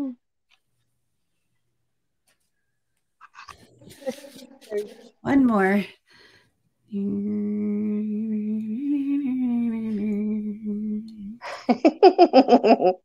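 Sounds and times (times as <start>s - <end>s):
person humming: 0.0s - 0.2s, 3.6s - 5.2s, 6.9s - 11.7s
person singing short syllables: 6.9s - 11.4s.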